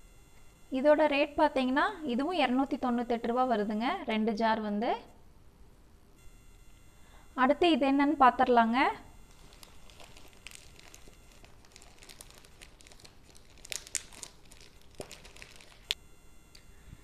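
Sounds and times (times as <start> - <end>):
plastic bag crinkling: 9.3 - 16.0.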